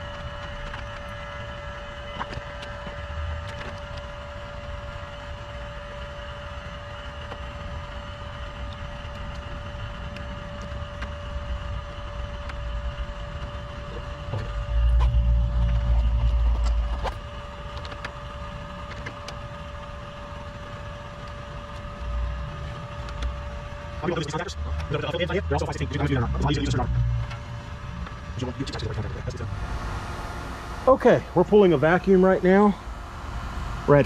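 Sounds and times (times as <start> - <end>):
air conditioner humming: 0.0 - 34.0
low rumble: 8.0 - 20.0, 21.1 - 33.9.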